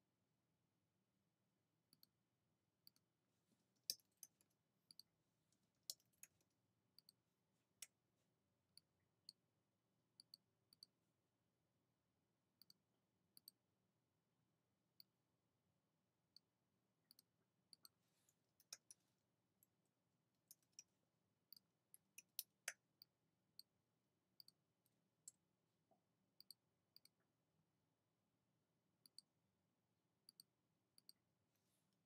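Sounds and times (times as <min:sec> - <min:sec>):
mouse clicks: 0:04.9 - 0:05.1, 0:17.1 - 0:17.9, 0:26.4 - 0:27.1, 0:29.0 - 0:29.3, 0:30.3 - 0:31.2.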